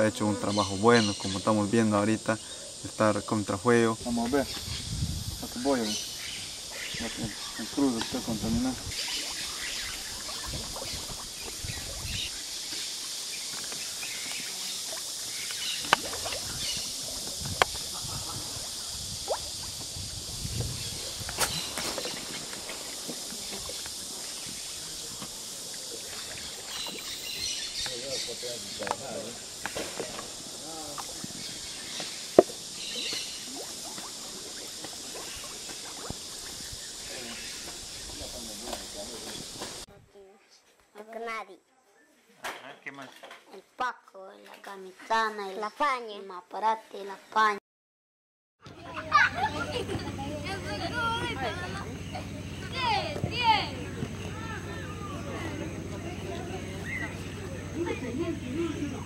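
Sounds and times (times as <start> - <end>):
steady high hiss: 0.0 - 40.4, 48.8 - 59.0
water sloshing against wooden boat: 7.0 - 18.6, 19.2 - 28.0, 28.8 - 39.8.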